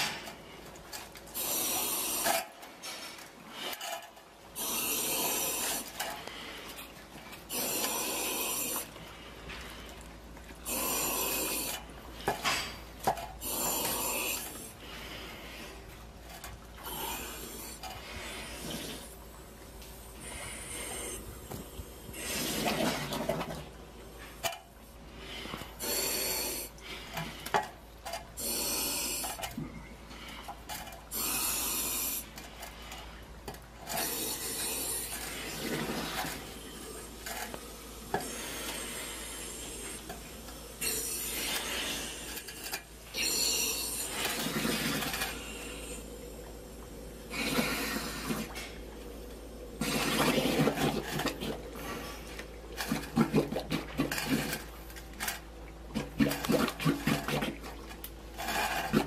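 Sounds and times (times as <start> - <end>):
thick slurry gurgling and sloshing: 22.1 - 24.4, 25.0 - 59.0.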